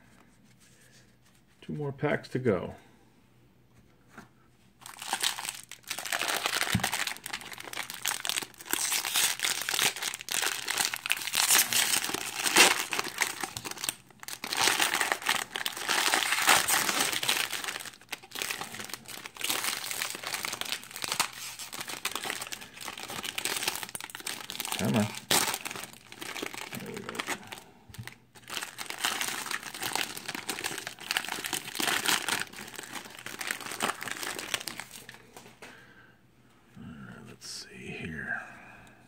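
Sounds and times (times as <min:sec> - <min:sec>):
card pack wrapper tearing: 0:04.9 - 0:35.2.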